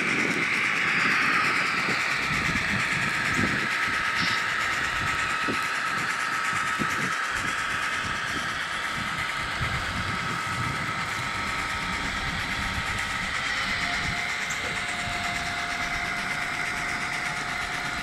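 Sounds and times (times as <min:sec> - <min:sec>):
small electric motor whine: 0:00.0 - 0:18.0
wheels rumbling on rail: 0:00.0 - 0:18.0.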